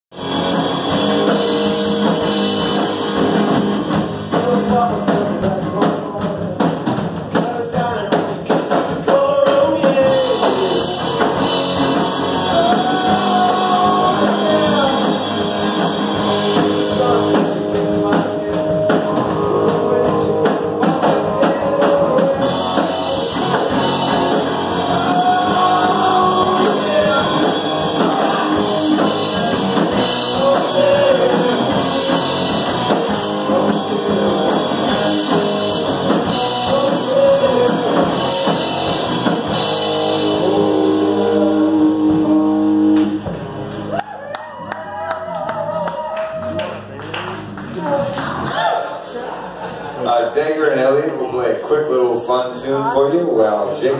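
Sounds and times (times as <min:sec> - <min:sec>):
electric guitars: 0:00.1 - 0:07.4, 0:08.3 - 0:48.6
drum kit: 0:00.1 - 0:48.7
person singing: 0:04.3 - 0:43.4.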